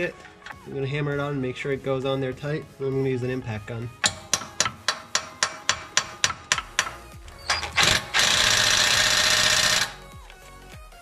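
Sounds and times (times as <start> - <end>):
impact gun hammering: 4.0 - 7.1.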